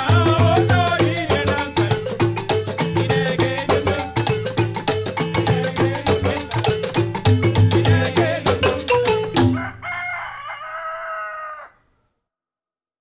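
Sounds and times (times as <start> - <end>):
fast percussion music: 0.0 - 9.7
rooster crowing: 9.1 - 12.1.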